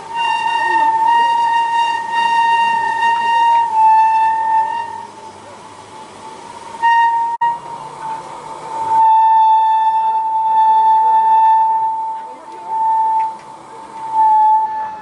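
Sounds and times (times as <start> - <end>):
high-pitched whistle: 0.0 - 5.2, 6.8 - 7.7, 8.8 - 13.4, 14.0 - 15.0.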